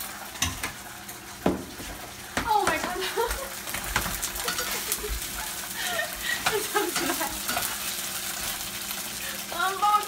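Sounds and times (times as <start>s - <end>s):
food sizzling in oil: 0.0s - 10.0s
spatula scraping and clicking on pan: 6.4s - 8.6s.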